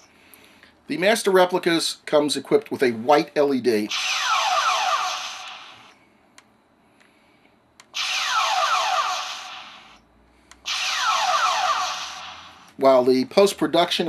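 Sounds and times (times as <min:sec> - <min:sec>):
toy phaser electronic blast: 0:03.9 - 0:06.0, 0:07.9 - 0:10.0, 0:10.6 - 0:12.8.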